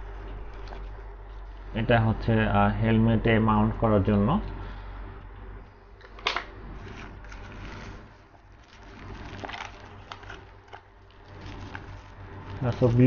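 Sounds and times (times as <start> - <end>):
plastic packaging rustling: 0.0 - 1.6, 6.1 - 13.0
steady low hum: 0.0 - 13.0.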